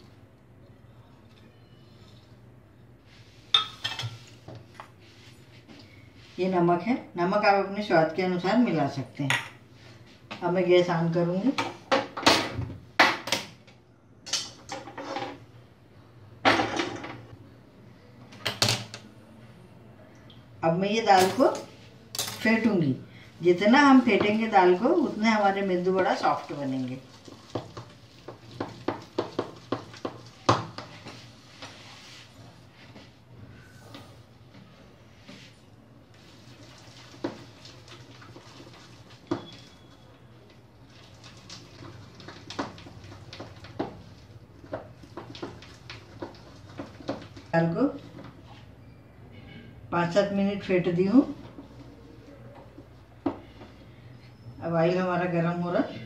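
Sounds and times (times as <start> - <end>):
cookware clattering: 3.6 - 4.2.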